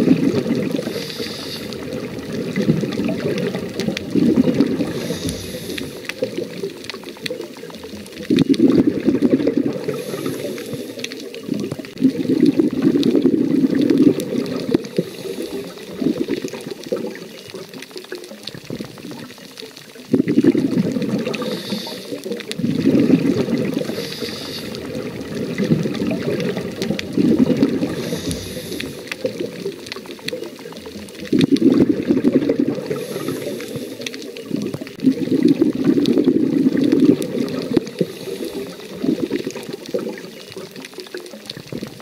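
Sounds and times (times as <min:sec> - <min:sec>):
exhaled bubbles rushing: 0:00.0 - 0:42.0
regulator inhalation hiss: 0:00.7 - 0:02.0, 0:04.8 - 0:06.3, 0:09.9 - 0:11.2, 0:14.9 - 0:15.9, 0:21.3 - 0:22.3, 0:23.8 - 0:25.0, 0:27.8 - 0:29.4, 0:32.9 - 0:34.3, 0:38.0 - 0:39.0.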